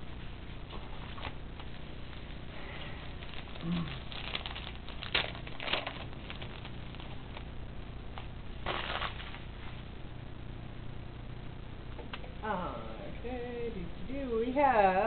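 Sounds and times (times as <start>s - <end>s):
foil wrapper crinkling: 0.7s - 7.6s, 8.2s - 9.8s.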